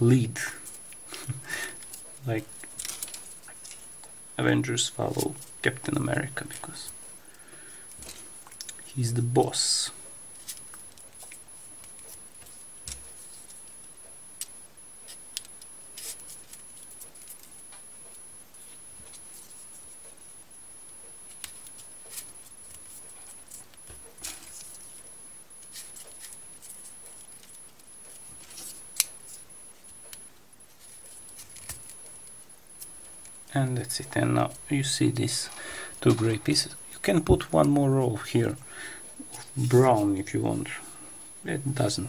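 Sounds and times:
faint steady hiss: 0:00.0 - 0:42.0
thin high-pitched whine: 0:00.0 - 0:42.0
paper clicks and rustles: 0:00.6 - 0:03.9, 0:21.3 - 0:25.0, 0:25.6 - 0:29.5, 0:30.8 - 0:32.1.

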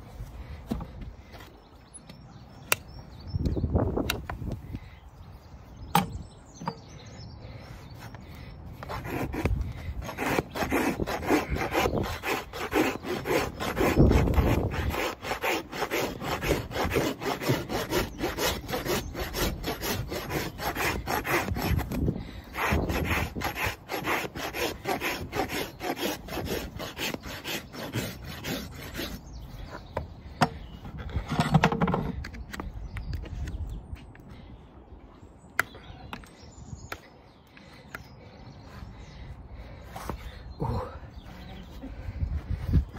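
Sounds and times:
rasp filing a hoof: 0:08.8 - 0:32.2.

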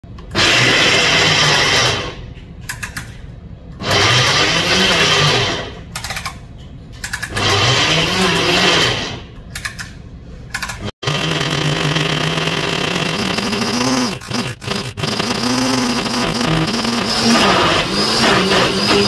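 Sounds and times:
blender grinding nuts: 0:00.3 - 0:02.2, 0:03.8 - 0:05.7, 0:07.3 - 0:09.2, 0:11.0 - 0:19.0.

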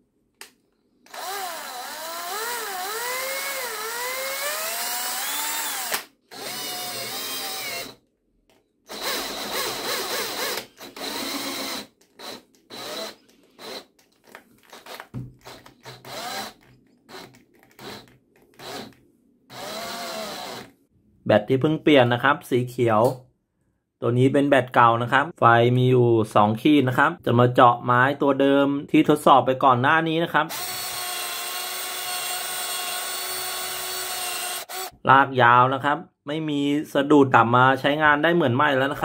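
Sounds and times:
cordless drill whining: 0:01.0 - 0:08.0, 0:08.9 - 0:20.8, 0:30.5 - 0:35.0.

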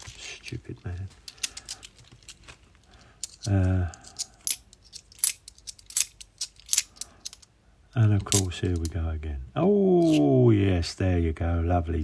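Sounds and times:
coins clicking together: 0:03.2 - 0:07.5.

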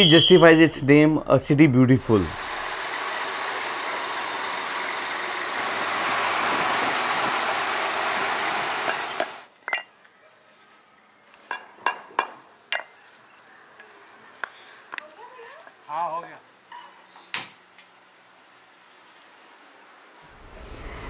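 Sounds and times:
sprayer hissing: 0:02.1 - 0:09.4.

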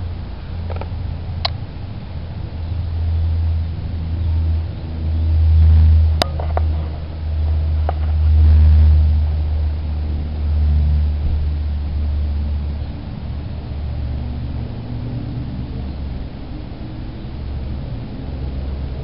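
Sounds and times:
loud low rumble: 0:00.0 - 0:19.0.

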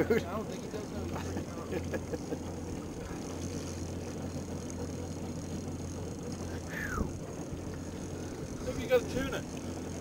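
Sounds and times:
outboard motor idling: 0:00.0 - 0:10.0.

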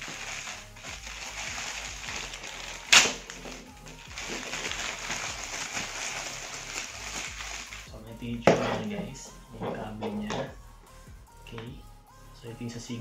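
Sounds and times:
loud plastic crackle: 0:00.0 - 0:07.9
plastic packaging rustling: 0:00.0 - 0:07.9.

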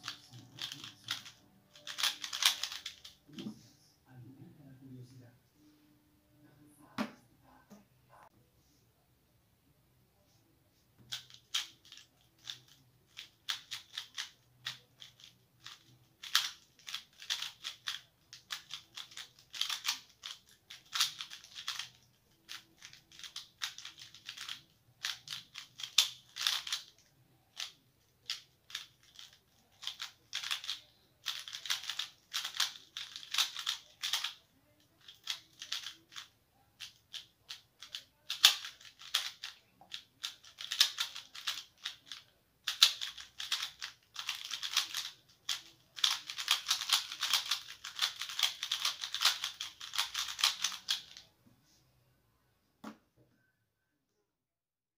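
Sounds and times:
puzzle cube clicking turns: 0:00.0 - 0:03.2, 0:11.1 - 0:51.2.

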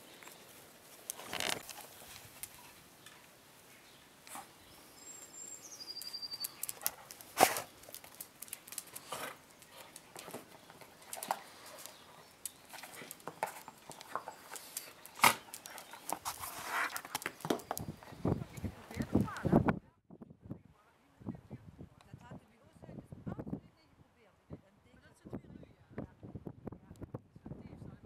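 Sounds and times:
bird chirping: 0:02.4 - 0:08.0, 0:08.9 - 0:19.1.

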